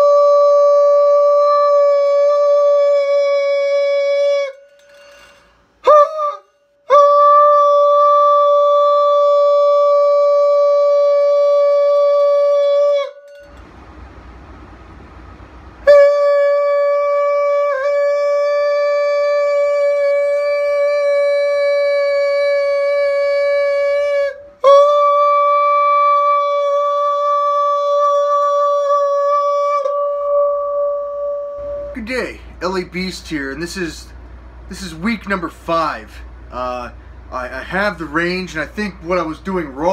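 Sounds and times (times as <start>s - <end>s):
man singing a high note: 0.0s - 13.2s, 15.8s - 33.0s
man breathing: 36.1s - 37.3s.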